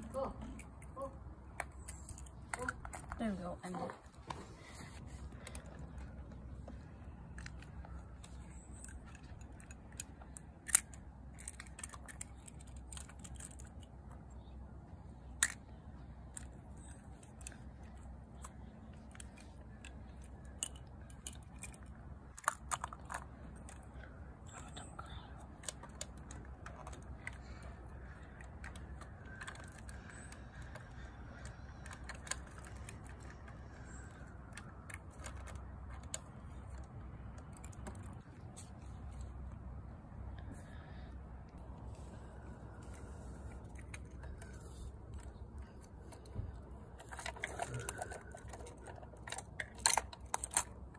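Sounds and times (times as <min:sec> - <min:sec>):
steady low rumble: 0:00.0 - 0:50.9
toy truck clicks and knocks: 0:07.3 - 0:13.9, 0:15.3 - 0:38.2, 0:45.2 - 0:50.9.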